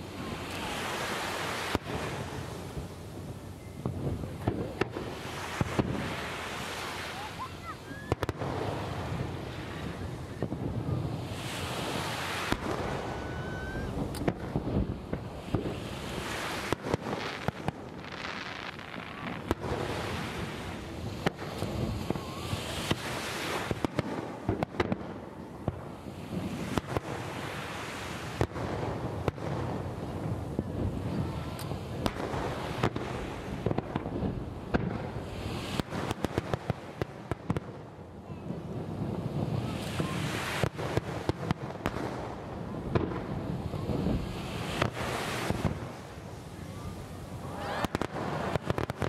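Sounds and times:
firework whistling glides: 0.0s - 24.6s
fireworks bursting with sharp bangs: 0.0s - 49.0s.

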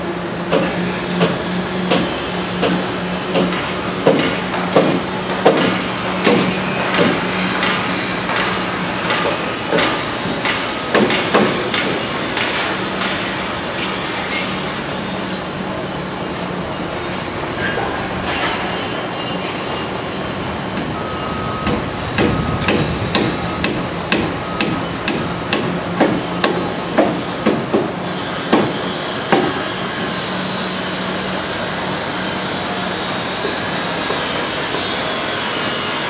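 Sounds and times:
construction site noise: 0.0s - 36.0s.

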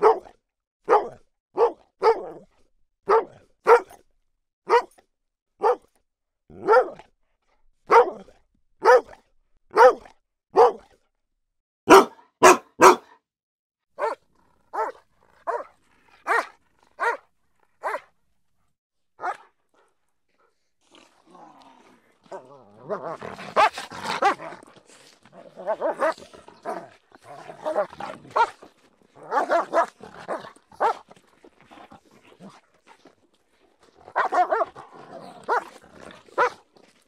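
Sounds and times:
dog barking: 0.0s - 2.4s, 3.1s - 4.0s, 4.7s - 5.0s, 5.6s - 5.9s, 6.6s - 7.1s, 7.9s - 10.9s, 11.9s - 13.2s, 14.0s - 17.2s, 17.8s - 18.1s, 19.2s - 19.5s, 23.5s - 24.5s, 25.6s - 26.9s, 27.6s - 28.6s, 29.2s - 31.0s, 34.1s - 34.8s, 35.5s - 35.7s, 36.4s - 36.6s.

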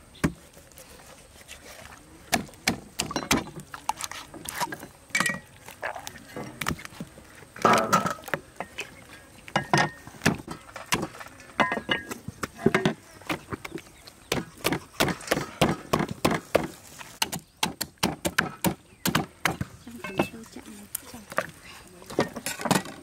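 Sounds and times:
cleaver chopping on wooden board: 2.3s - 3.5s, 14.3s - 19.7s.

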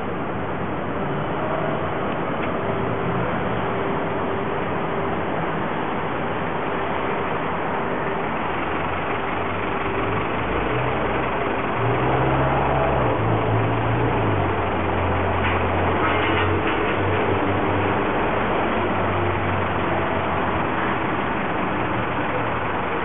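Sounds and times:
city street traffic: 0.0s - 23.0s
heavy vehicle engine humming: 0.0s - 23.0s.

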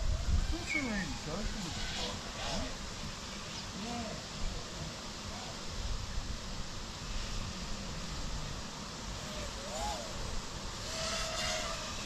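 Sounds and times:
outdoor bush ambience hiss: 0.0s - 12.0s.

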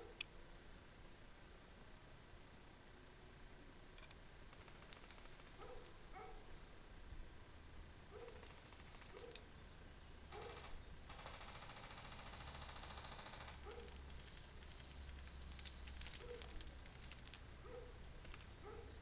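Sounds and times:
sharp clicks and snaps: 4.0s - 5.4s, 13.7s - 17.5s, 18.2s - 18.6s
airsoft guns firing on full auto: 4.5s - 5.7s, 8.3s - 9.4s, 10.3s - 16.6s.

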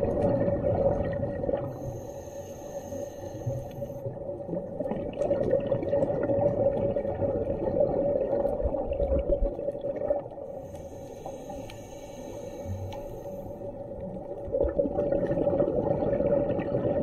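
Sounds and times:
faint crackling clicks: 0.0s - 6.2s, 8.3s - 15.4s
muffled underwater rushing water: 0.0s - 17.0s.

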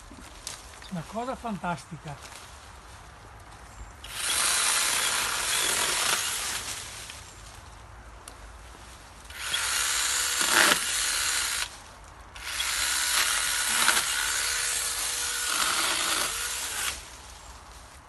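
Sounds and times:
small chainsaw cutting branch: 4.0s - 7.1s, 9.3s - 11.8s, 12.4s - 17.1s.

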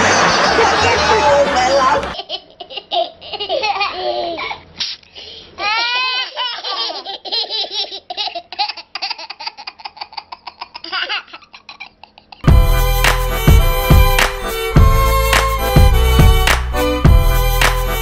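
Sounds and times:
toddlers laughing: 0.0s - 4.7s, 5.6s - 12.5s.

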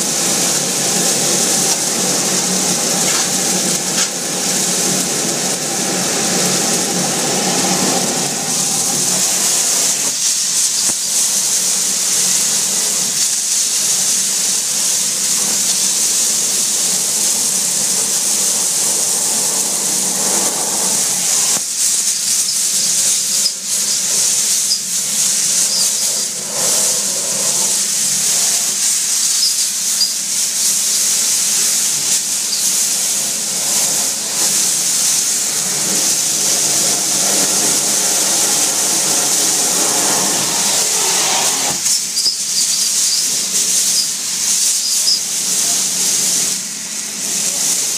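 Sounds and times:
vacuum hose suction rush: 0.0s - 12.1s, 23.2s - 42.6s.

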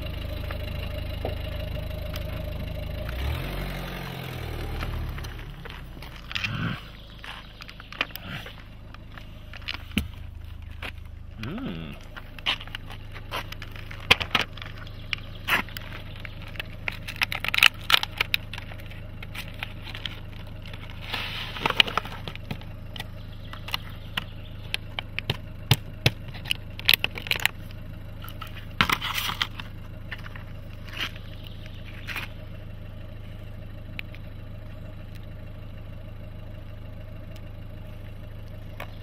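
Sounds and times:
car engine idling: 0.0s - 39.0s
tubes clicking on gravel: 4.3s - 32.6s.

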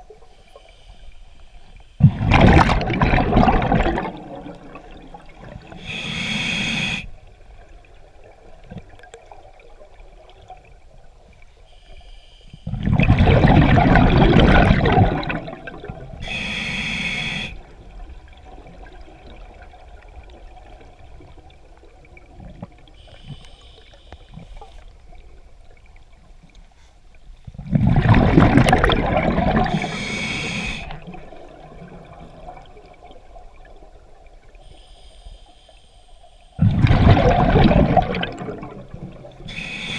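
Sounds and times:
regulator inhale hiss: 0.2s - 2.0s, 5.7s - 7.2s, 11.6s - 12.7s, 16.2s - 17.7s, 22.9s - 25.0s, 29.7s - 31.1s, 34.5s - 36.6s, 39.4s - 39.9s
exhaled bubbles rushing: 2.0s - 5.8s, 12.7s - 16.2s, 27.6s - 30.0s, 30.7s - 34.4s, 36.6s - 39.6s.

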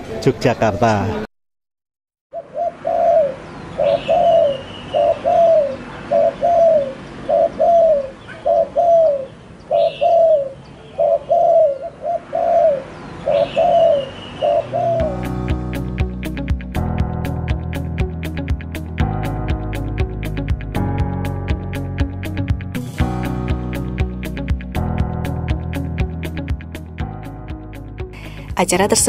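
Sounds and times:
higher bird chirps: 2.3s - 15.4s
dove cooing: 2.4s - 15.2s.

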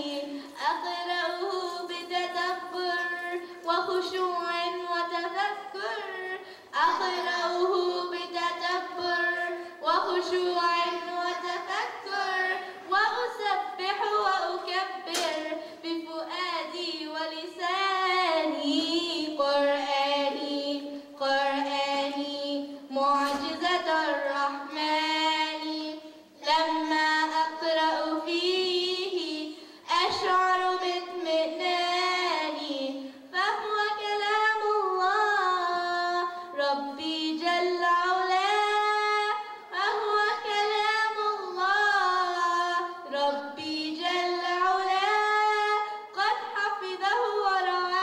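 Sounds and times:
woman singing unaccompanied: 0.0s - 48.0s
singer breathing: 6.4s - 6.7s, 29.6s - 29.9s.

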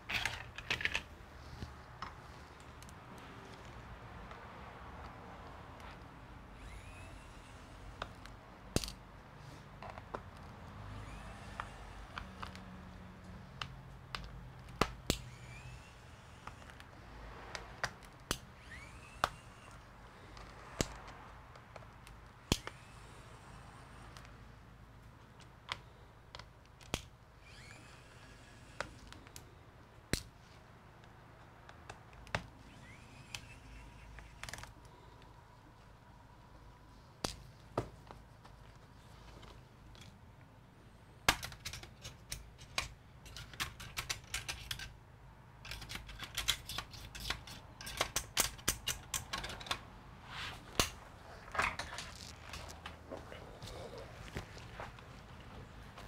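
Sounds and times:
hand tools clicking on laptop: 9.8s - 22.8s, 45.7s - 49.8s
short rising squeaks: 18.6s - 19.9s, 27.4s - 28.8s.

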